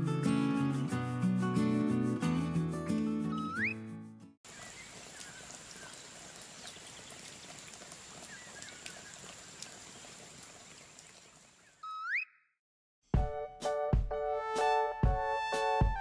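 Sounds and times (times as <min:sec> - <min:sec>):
outdoor ambient hiss: 0:04.5 - 0:11.8.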